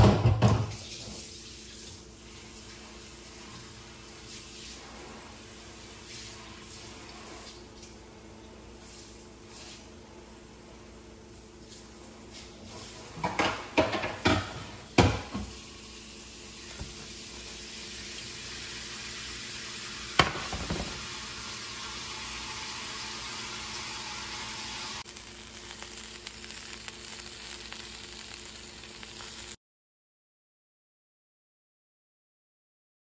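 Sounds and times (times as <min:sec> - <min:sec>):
eggs sizzling in frying pan: 0:00.0 - 0:29.6
sharp knock of pan: 0:20.2 - 0:20.9.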